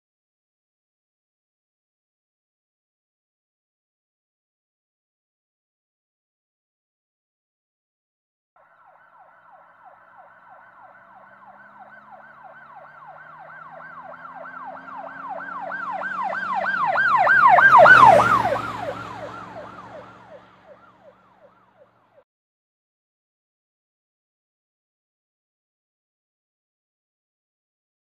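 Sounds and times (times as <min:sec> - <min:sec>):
siren yelping: 0:08.6 - 0:22.0
vehicle noise: 0:08.6 - 0:22.2.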